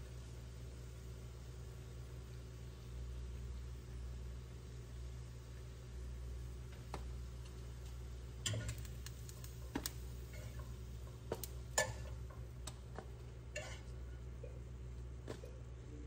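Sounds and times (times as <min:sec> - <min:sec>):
steady low hum: 0:00.0 - 0:16.0
metal fork clicking on pan: 0:08.4 - 0:10.6, 0:11.3 - 0:12.2.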